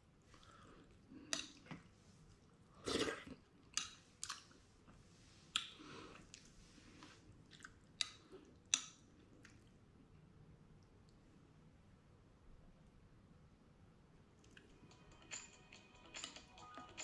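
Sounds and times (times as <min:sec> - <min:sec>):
faint chewing: 0:00.3 - 0:10.2, 0:14.4 - 0:14.8.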